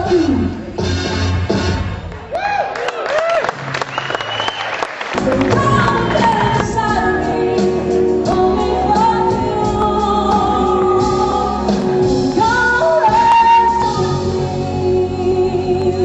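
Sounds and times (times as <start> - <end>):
band with drums: 5.1 - 14.7
woman singing: 5.2 - 16.0.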